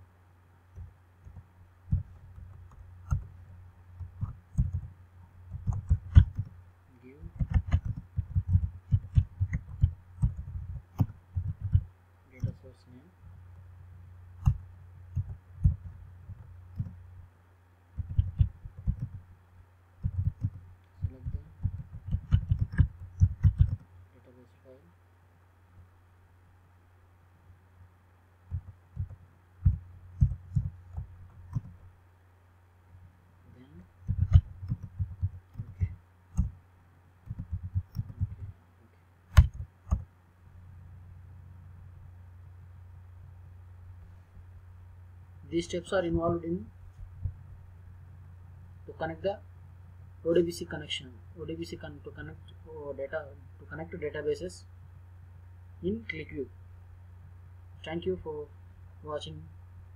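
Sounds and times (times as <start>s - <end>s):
low steady hum: 0.0s - 59.9s
keyboard typing: 0.7s - 3.4s, 4.0s - 4.9s, 5.5s - 6.6s, 7.2s - 12.6s, 14.4s - 17.0s, 18.0s - 19.2s, 20.0s - 23.9s, 28.5s - 31.8s, 34.0s - 36.6s, 37.2s - 38.5s, 39.3s - 40.0s.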